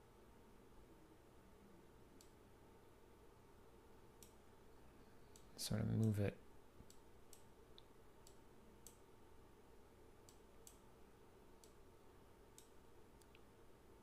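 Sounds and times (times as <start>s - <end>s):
computer mouse clicks: 2.2s - 2.4s, 4.2s - 4.4s, 6.8s - 9.0s, 10.2s - 10.9s, 11.6s - 11.8s, 12.5s - 13.5s.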